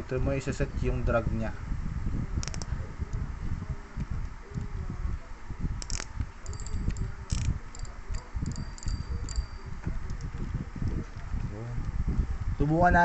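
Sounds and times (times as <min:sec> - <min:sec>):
fishing reel clicking: 0:05.8 - 0:09.5.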